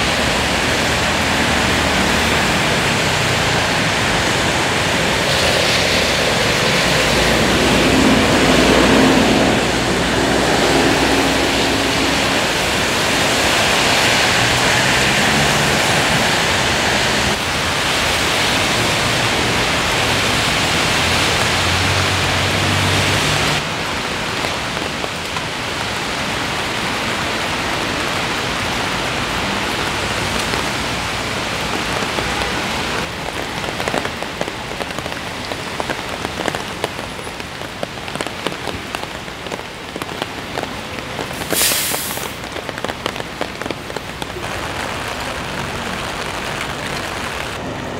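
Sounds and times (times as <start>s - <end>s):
low traffic engine hum: 0.0s - 24.2s
steady rain falling: 0.0s - 47.9s
tyre hiss: 41.3s - 42.4s.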